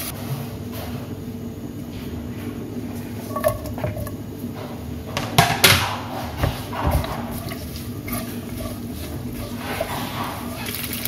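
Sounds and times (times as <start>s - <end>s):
spatula scraping a wok: 6.1s - 11.0s.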